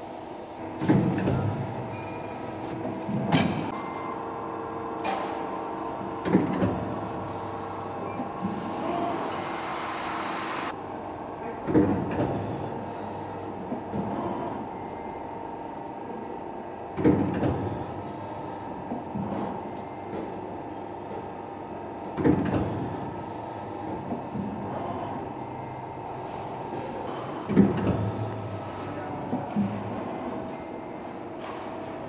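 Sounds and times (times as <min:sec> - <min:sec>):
machine clunks: 0:00.8 - 0:01.6.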